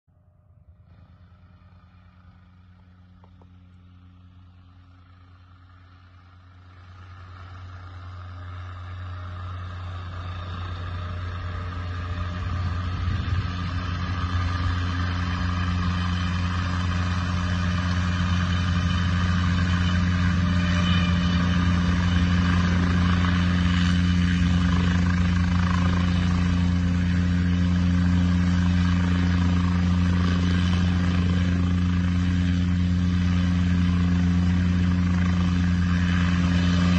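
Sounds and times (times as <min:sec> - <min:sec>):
helicopter hovering: 0:00.1 - 0:36.9.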